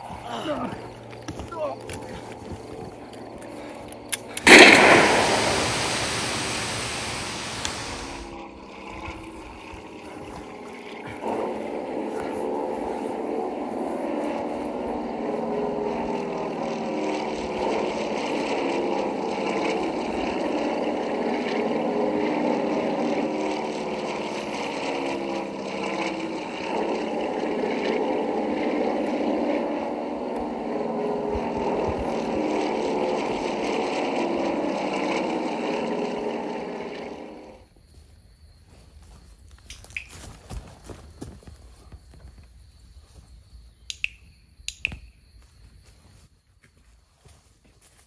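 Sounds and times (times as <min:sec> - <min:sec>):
propeller aircraft engines droning: 0:00.0 - 0:37.8.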